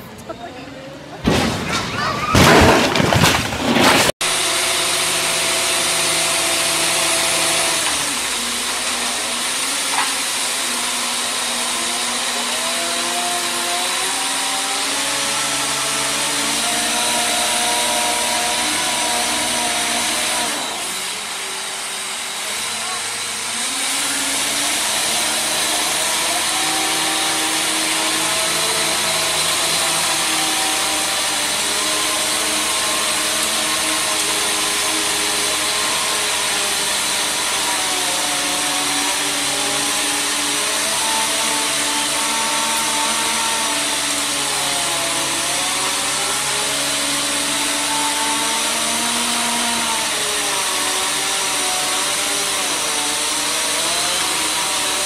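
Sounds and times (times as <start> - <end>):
crane engine and hydraulics whine: 13.8 - 40.8.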